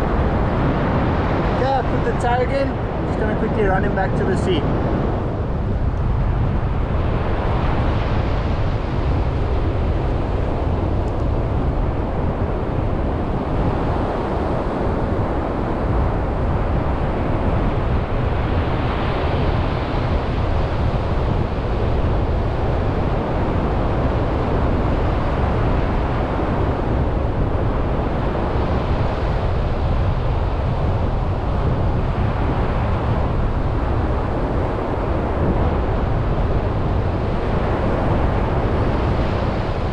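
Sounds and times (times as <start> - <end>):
wind rumbling on microphone: 0.0 - 39.9
surf breaking on shore: 12.7 - 39.9.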